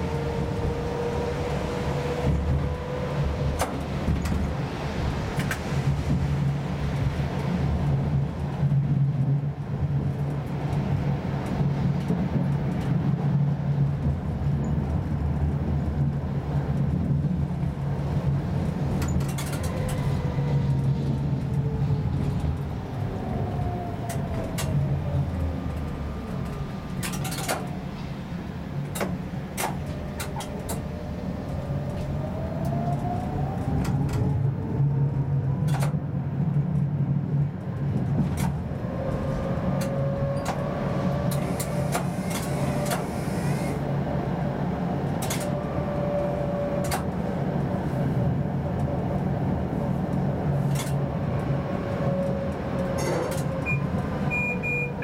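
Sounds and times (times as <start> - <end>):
tram rolling hum: 0.0 - 55.0.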